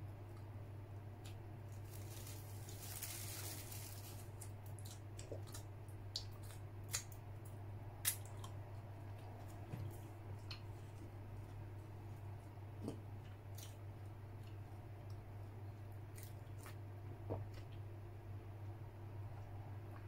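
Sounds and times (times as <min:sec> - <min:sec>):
low steady hum: 0:00.0 - 0:20.0
chewing and wet mouth smacks: 0:04.7 - 0:08.6.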